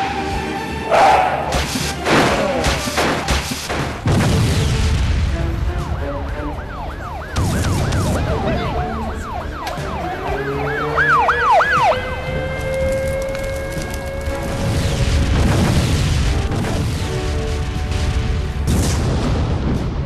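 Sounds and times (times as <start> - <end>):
background music: 0.0 - 20.0
fire engine siren wailing: 5.4 - 15.4.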